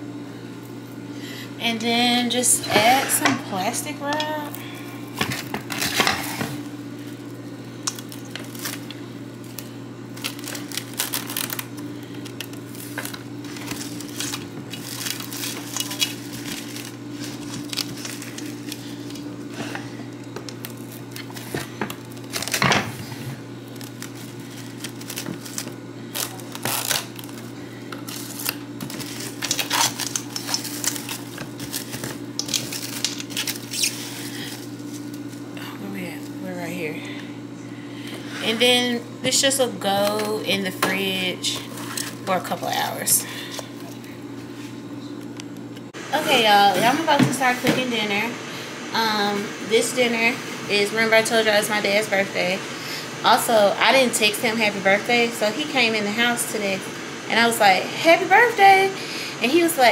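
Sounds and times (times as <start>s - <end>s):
plastic cling wrap crinkling: 3.6s - 19.3s, 20.1s - 35.4s.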